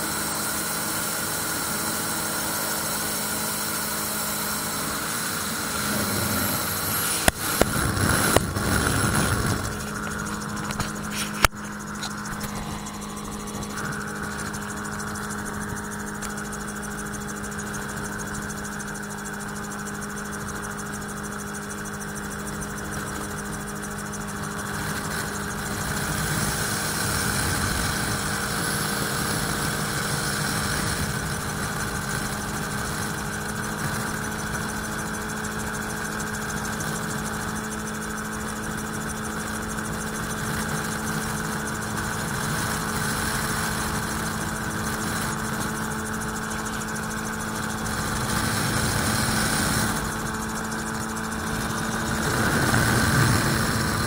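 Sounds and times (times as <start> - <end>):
autogyro engine and propeller drone: 0.0 - 54.0
rushing air: 4.9 - 14.4.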